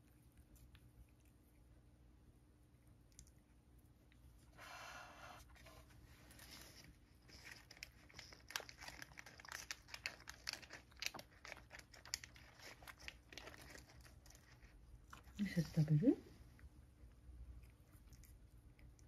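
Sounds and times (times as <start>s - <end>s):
cat crunching dry treats: 6.4s - 15.4s.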